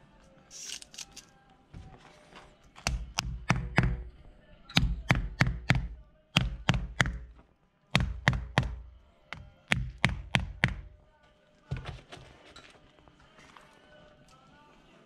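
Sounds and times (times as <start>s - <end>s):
rubber mallet striking plastic plugs: 2.8s - 4.1s, 4.7s - 10.9s.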